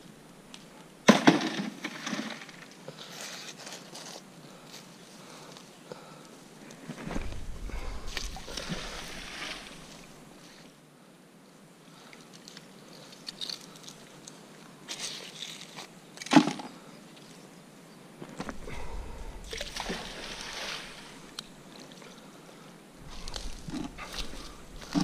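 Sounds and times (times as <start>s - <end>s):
rope rustling through grass: 23.0s - 25.0s.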